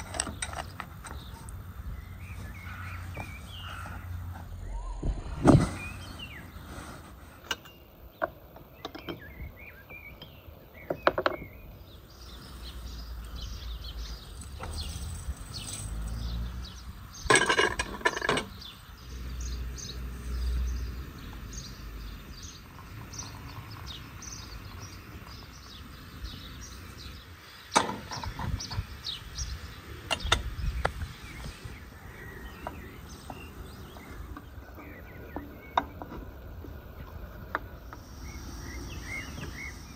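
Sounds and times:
small birds chirping: 0.0s - 39.9s
heavy thump of carpet on grass: 5.0s - 6.4s.

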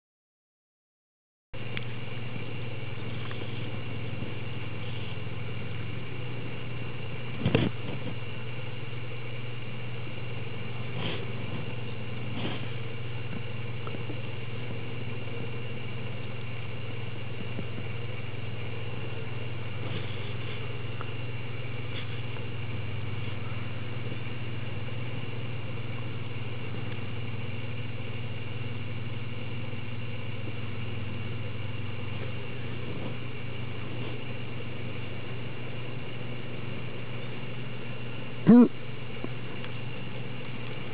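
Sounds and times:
low mechanical hum: 1.6s - 40.9s.

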